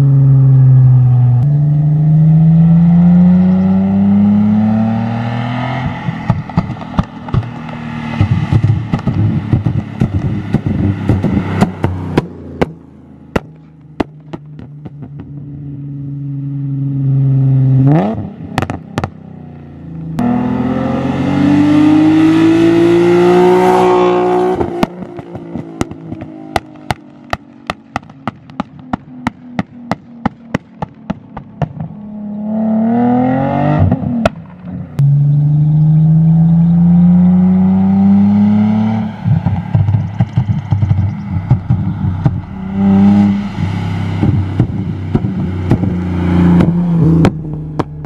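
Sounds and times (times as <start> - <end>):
car engine revving hard: 1.7 - 12.7, 17.2 - 19.1, 20.2 - 25.6, 32.4 - 34.3, 35.1 - 48.0
exhaust pops and crackles: 6.2 - 15.4, 18.5 - 19.2, 24.6 - 32.0, 39.4 - 43.5, 44.2 - 48.0.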